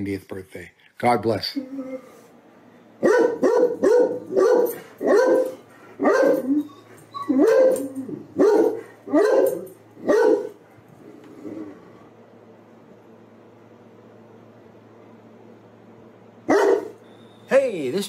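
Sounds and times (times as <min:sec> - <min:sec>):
large dog barking: 0:03.0 - 0:06.7, 0:07.3 - 0:10.9, 0:16.5 - 0:17.0.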